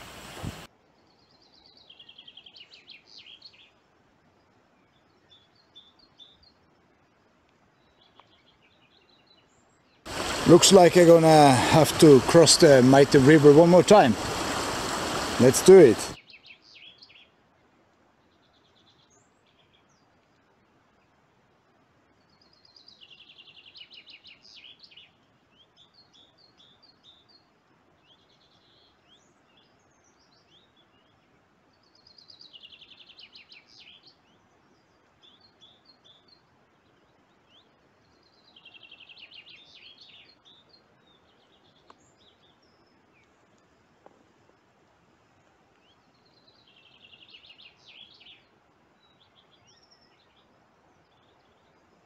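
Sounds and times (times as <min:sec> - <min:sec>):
songbird trilling: 0:45.8 - 0:50.5.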